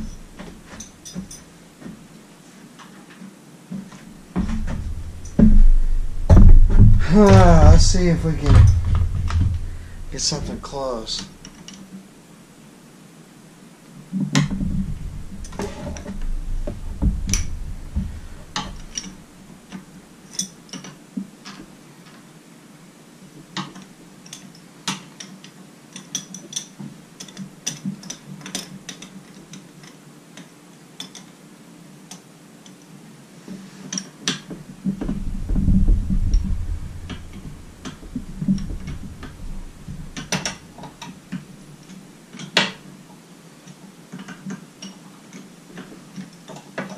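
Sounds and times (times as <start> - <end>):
low rumbling knocks: 4.1 - 11.4, 14.3 - 19.5, 34.6 - 41.9.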